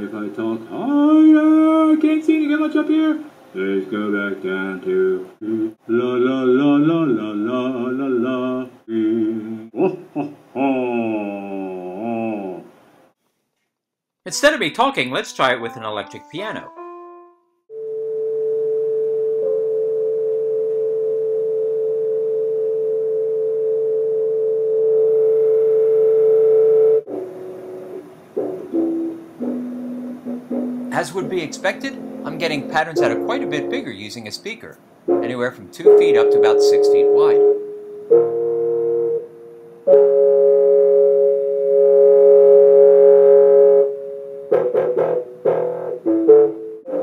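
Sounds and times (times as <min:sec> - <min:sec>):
electric piano steady tone: 0:15.6 - 0:34.3, 0:35.1 - 0:47.0.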